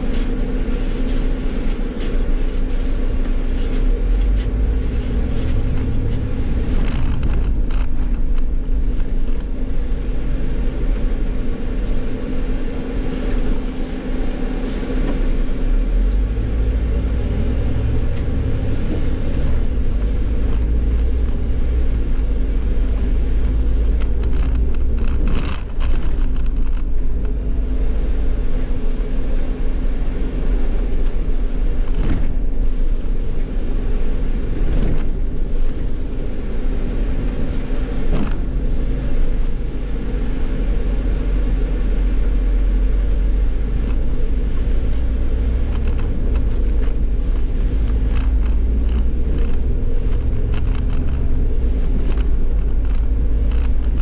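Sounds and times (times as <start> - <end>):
bus engine droning: 0.0 - 54.0
bus clicks and knocks: 30.8 - 32.7, 34.6 - 36.0, 37.1 - 39.6.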